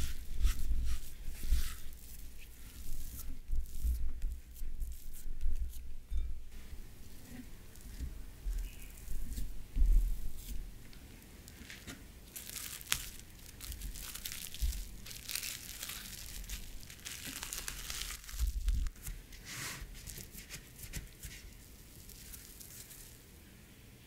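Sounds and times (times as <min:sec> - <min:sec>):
cling film crinkling: 0:07.7 - 0:19.3, 0:19.9 - 0:23.3.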